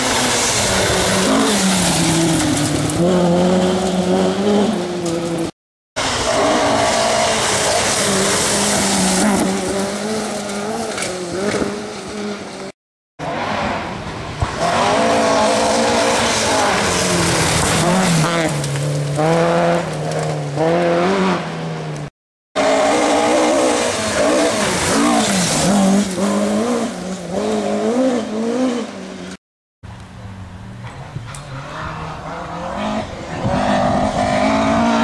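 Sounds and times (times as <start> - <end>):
rally car engines at full throttle: 0.0 - 29.4, 30.2 - 35.0.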